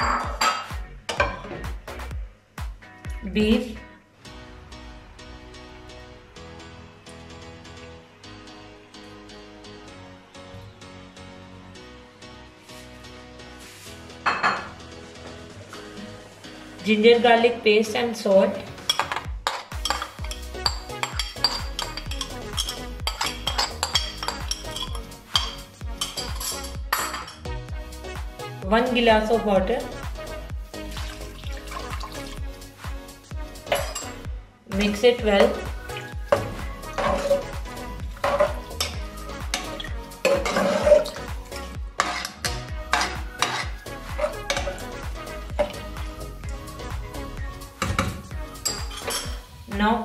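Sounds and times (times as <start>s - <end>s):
background music with steady beat: 0.0s - 50.0s
metal spoon scraping a bowl: 19.8s - 27.4s, 33.7s - 34.2s, 36.3s - 37.6s, 38.2s - 39.0s, 39.6s - 41.2s, 42.0s - 44.9s, 47.8s - 49.4s
wet sloshing: 30.8s - 32.4s.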